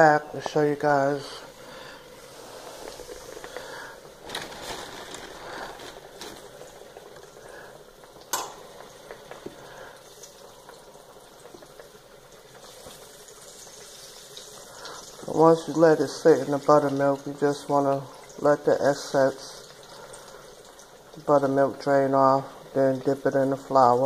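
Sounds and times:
meat sizzling in oil: 5.2 - 24.0.

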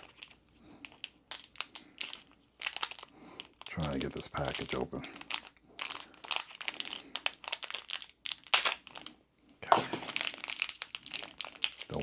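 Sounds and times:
packaging crinkling: 0.0 - 12.0.

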